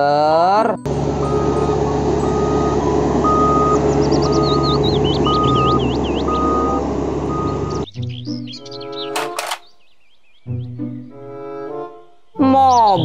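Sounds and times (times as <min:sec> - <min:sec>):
birds chirping: 0:00.0 - 0:13.0
road roller diesel engine running: 0:00.9 - 0:07.9
reversing alarm beeping: 0:01.1 - 0:07.9.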